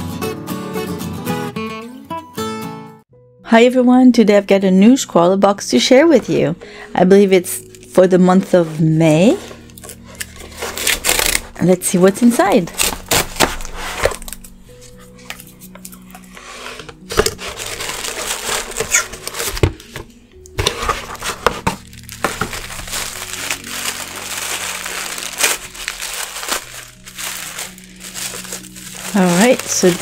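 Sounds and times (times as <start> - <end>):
soft background music: 1.9 - 30.0
tissue paper rustling: 7.6 - 30.0.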